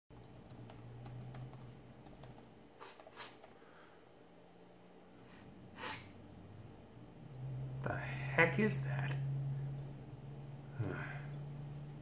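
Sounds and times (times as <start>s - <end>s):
typing on computer keyboard: 0.1s - 3.6s
short breathy hisses: 2.8s - 3.4s, 5.2s - 6.2s.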